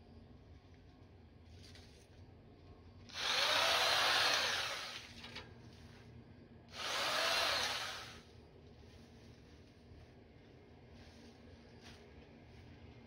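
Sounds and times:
electric hedge trimmer cutting grass: 0:03.1 - 0:05.1, 0:06.8 - 0:08.2.

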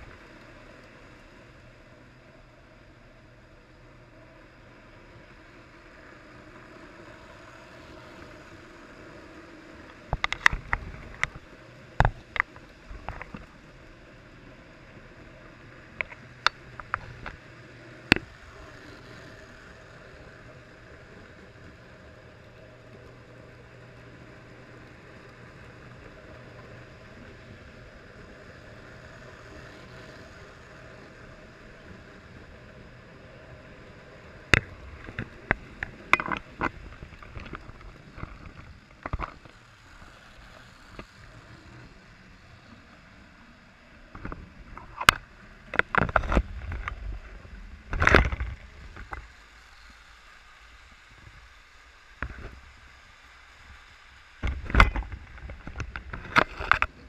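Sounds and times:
toy train motors and wheels rumbling: 0:00.0 - 0:57.0
sharp clicks and knocks: 0:09.9 - 0:13.5, 0:34.5 - 0:39.6, 0:44.1 - 0:47.1, 0:47.9 - 0:49.3, 0:54.4 - 0:57.0.

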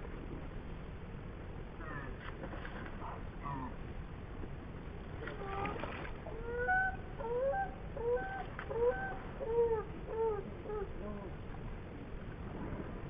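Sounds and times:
low background rush: 0:00.0 - 0:13.0
bird calling: 0:05.4 - 0:11.4.

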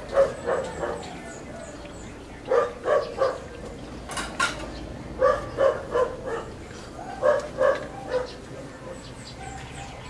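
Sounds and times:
dog barking: 0:00.1 - 0:01.1, 0:02.5 - 0:03.5, 0:05.2 - 0:10.0.

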